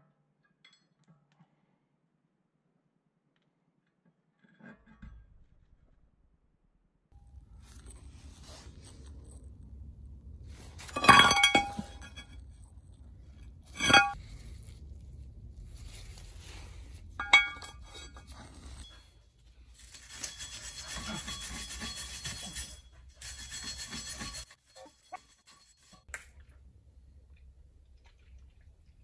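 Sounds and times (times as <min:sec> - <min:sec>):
wire brush scraping metal: 0:15.7 - 0:26.1.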